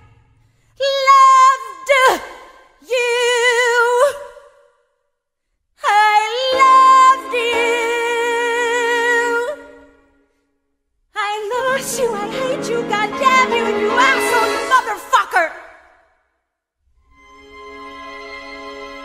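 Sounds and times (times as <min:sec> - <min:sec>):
woman singing with vibrato: 0:00.8 - 0:04.4, 0:05.8 - 0:10.0, 0:11.2 - 0:15.7
music: 0:05.9 - 0:10.6, 0:11.2 - 0:15.7, 0:16.8 - 0:19.0.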